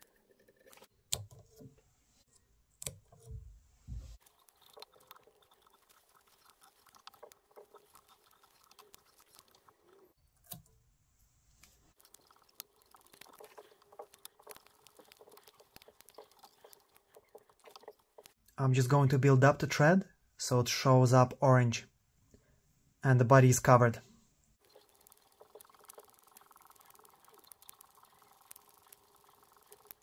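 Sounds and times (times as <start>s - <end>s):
soft handling thumps: 3.2s - 4.2s
thread wrapping ticks and rustles: 4.0s - 10.6s, 11.6s - 18.4s, 24.6s - 30.0s.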